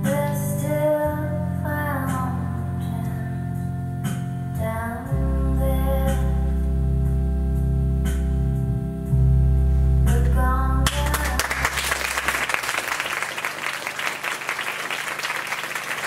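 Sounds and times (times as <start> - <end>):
audience applause: 11.0 - 16.0.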